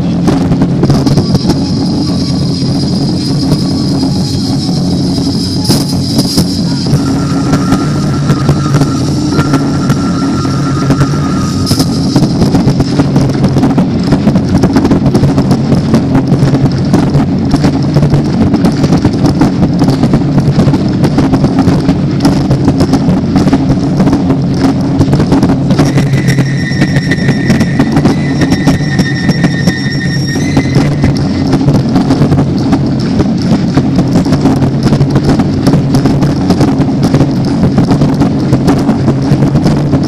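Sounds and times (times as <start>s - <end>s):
backing music: 0.0s - 14.0s, 24.0s - 33.2s.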